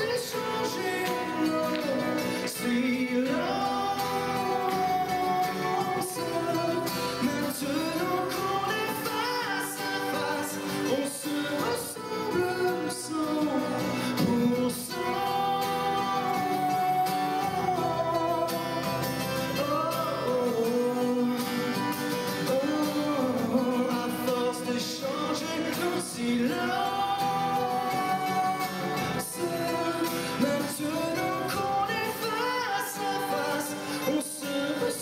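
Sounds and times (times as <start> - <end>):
person singing long held notes: 0.0 - 19.0
acoustic guitar: 0.0 - 35.0.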